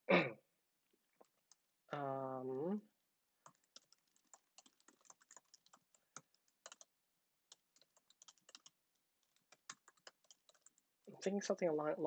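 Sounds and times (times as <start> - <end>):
keyboard typing: 1.2 - 1.7, 3.4 - 11.1.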